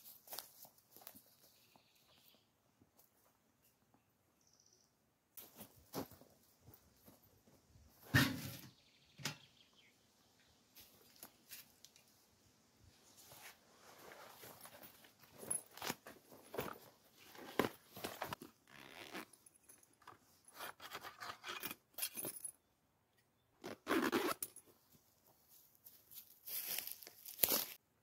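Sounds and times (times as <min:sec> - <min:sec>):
backpack scraping against bark: 0:13.2 - 0:19.4, 0:20.4 - 0:21.7, 0:23.6 - 0:24.6
straps and buckles clinking: 0:13.3 - 0:22.6, 0:23.6 - 0:24.9.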